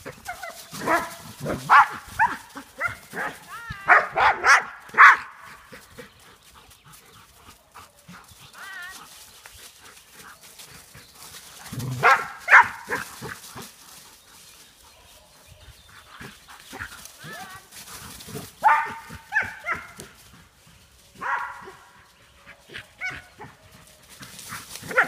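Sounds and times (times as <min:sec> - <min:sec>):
dogs barking: 0:00.0 - 0:06.0, 0:11.4 - 0:13.7, 0:18.2 - 0:20.2, 0:21.1 - 0:25.0
dry leaves rustling: 0:00.0 - 0:25.0.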